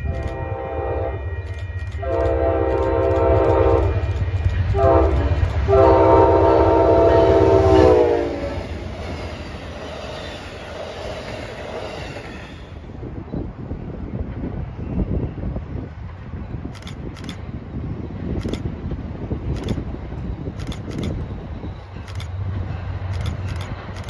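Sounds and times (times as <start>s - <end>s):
locomotive horn blasts: 0.0s - 8.7s
train cars clattering on rails: 0.0s - 12.8s, 18.2s - 24.0s
locomotive engine rumble: 0.0s - 24.0s.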